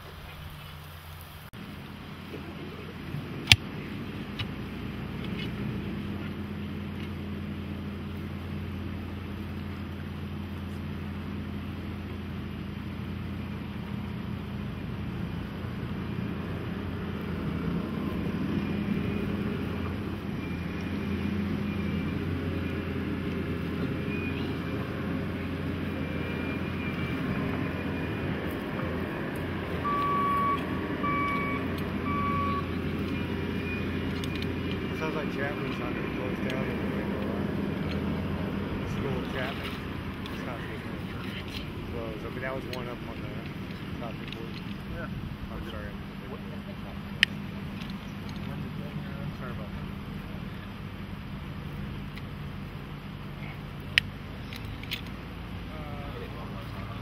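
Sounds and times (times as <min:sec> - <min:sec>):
vehicle engine running: 0:00.0 - 0:57.0
reversing beeps: 0:18.2 - 0:37.0.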